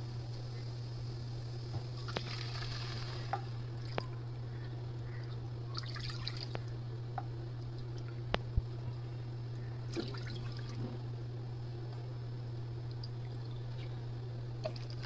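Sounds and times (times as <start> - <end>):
steady low hum: 0.0 - 15.0
water drips and splashes: 2.0 - 4.2, 5.2 - 6.8, 9.9 - 10.8, 12.8 - 13.8
water pouring: 2.0 - 4.2, 5.7 - 6.6, 9.9 - 10.9, 14.6 - 15.0.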